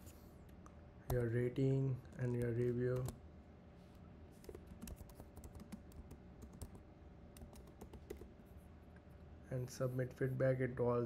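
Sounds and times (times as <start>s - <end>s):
faint keyboard typing: 0.4s - 3.2s, 4.3s - 8.5s.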